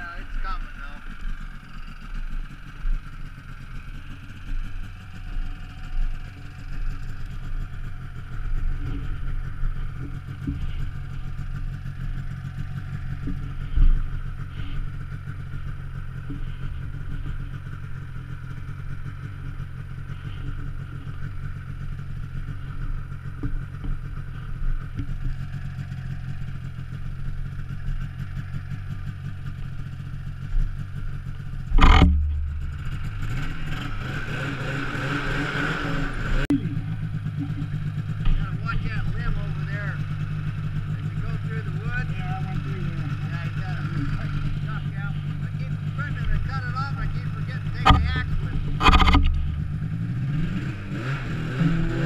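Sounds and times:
snowmobile engine running: 0.0s - 52.0s
knocks and rattles: 31.6s - 33.4s, 46.1s - 49.8s.

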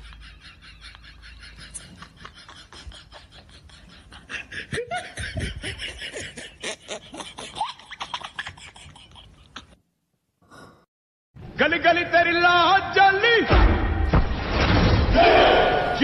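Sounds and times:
people laughing: 0.0s - 9.8s.

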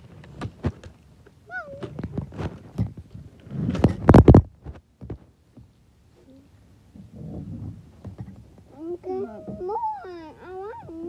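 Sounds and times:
fingers knocking on phone microphone: 1.8s - 5.7s
loud scraping rustle: 1.9s - 4.8s.

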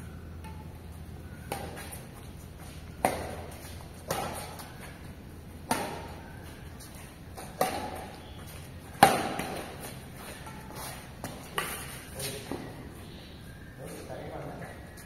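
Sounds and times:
badminton racket hitting shuttlecock: 7.4s - 8.2s, 8.9s - 12.0s.

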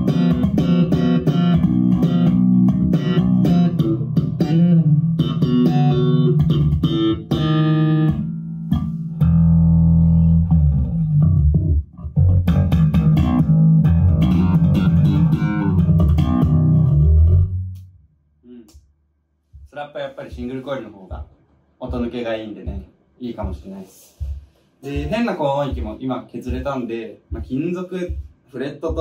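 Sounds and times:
slap electric bass: 0.0s - 18.8s.

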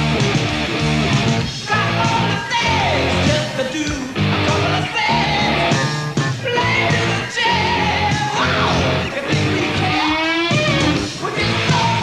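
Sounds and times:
rock band playing: 0.0s - 12.0s
male vocal singing and shouting: 1.5s - 12.0s.

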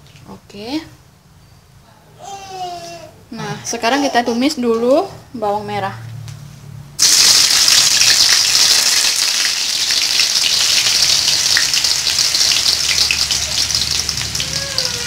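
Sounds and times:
shallots sizzling in hot oil: 7.0s - 15.0s.

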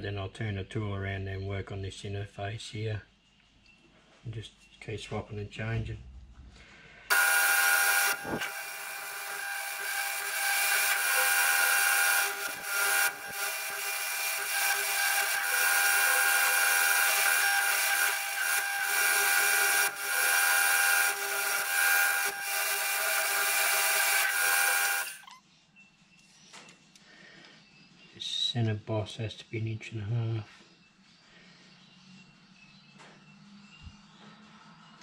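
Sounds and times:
hiss of lathe cutting metal: 7.1s - 25.2s
whine of spinning machine: 7.1s - 25.3s.

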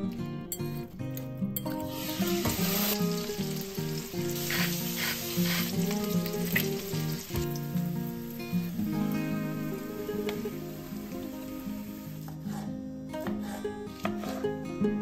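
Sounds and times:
background music: 0.0s - 15.0s
tongs scraping a pan: 1.7s - 7.4s
chicken sizzling in a pan: 1.8s - 12.7s, 13.4s - 14.4s.

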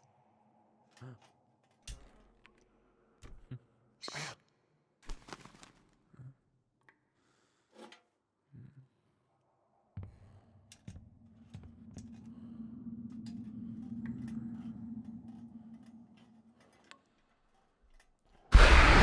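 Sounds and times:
low drone: 9.7s - 17.2s, 18.5s - 19.0s.

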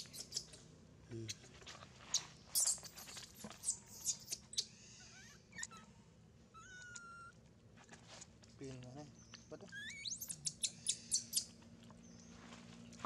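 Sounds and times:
baby monkey squealing: 0.0s - 0.6s, 2.1s - 5.9s, 6.5s - 7.4s, 9.6s - 11.5s.

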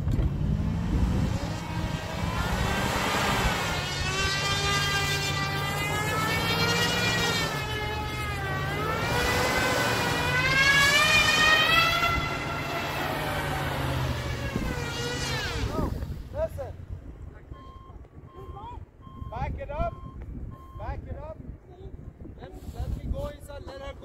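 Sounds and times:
truck engine revving: 0.0s - 16.9s
wheels spinning in snow: 1.0s - 16.0s.

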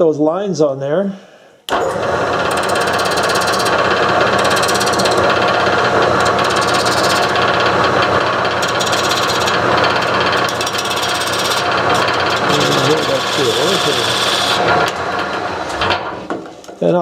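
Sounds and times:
wood lathe spinning: 1.7s - 16.6s
pencil marking spinning wood: 2.4s - 14.9s.

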